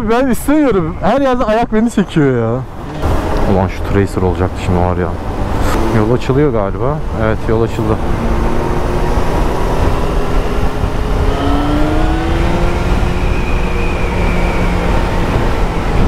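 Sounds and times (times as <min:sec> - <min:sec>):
wind noise rushing: 0:02.6 - 0:16.0
motorcycle engine accelerating: 0:02.8 - 0:04.2, 0:05.1 - 0:16.0.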